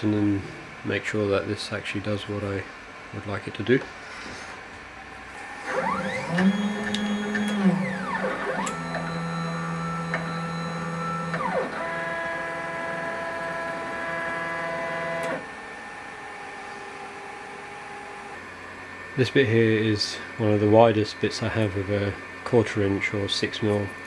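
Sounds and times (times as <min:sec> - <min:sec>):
stepper motors whining: 0:05.4 - 0:15.7.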